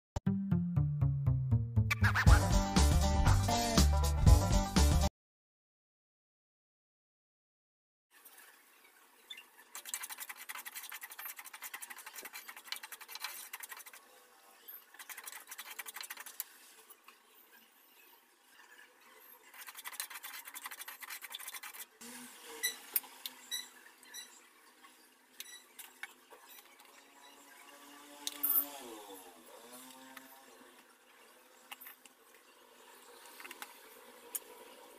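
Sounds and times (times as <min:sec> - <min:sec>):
spatula scraping semolina in pan: 0:09.2 - 0:22.0.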